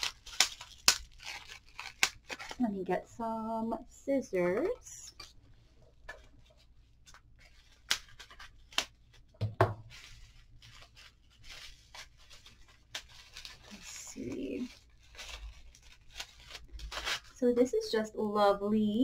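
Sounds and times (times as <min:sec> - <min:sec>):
plastic rustling and tearing: 0:00.0 - 0:03.2, 0:06.2 - 0:17.4.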